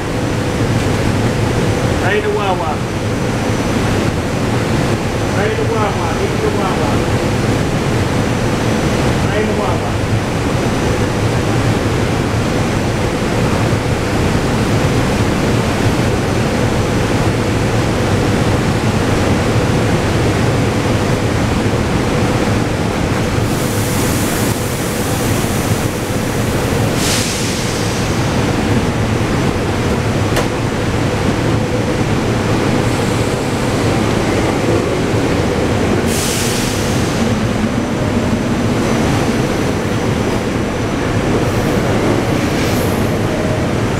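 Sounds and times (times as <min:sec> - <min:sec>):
train equipment humming: 0:00.0 - 0:43.9
train pulling away: 0:11.7 - 0:43.9
air hiss bursts: 0:23.4 - 0:26.3, 0:26.9 - 0:28.3, 0:36.0 - 0:37.4.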